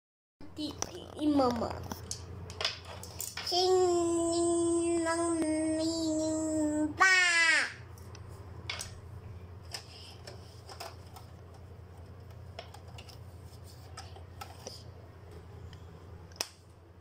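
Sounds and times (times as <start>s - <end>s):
steady low hum: 0.4s - 17.0s
objects clicking on a desk: 9.7s - 13.2s.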